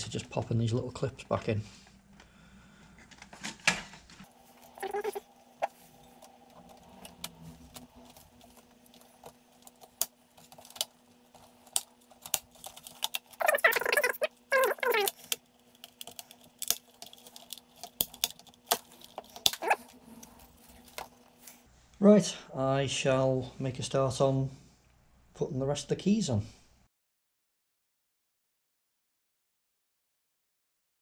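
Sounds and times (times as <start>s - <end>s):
plastic clips scraping: 4.6s - 21.6s
plastic and metal parts clicking: 4.8s - 21.2s.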